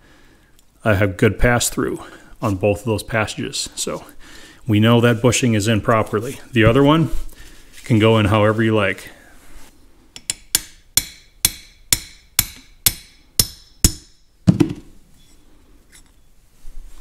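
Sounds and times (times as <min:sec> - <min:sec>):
hammer striking steel punch: 0:10.2 - 0:14.8.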